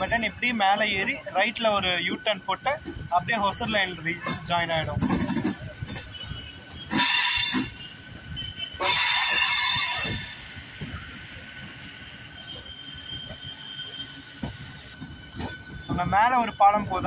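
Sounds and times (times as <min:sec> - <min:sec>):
train running with faint whine: 0:00.0 - 0:17.0
train wheels squealing on rails: 0:00.0 - 0:17.0.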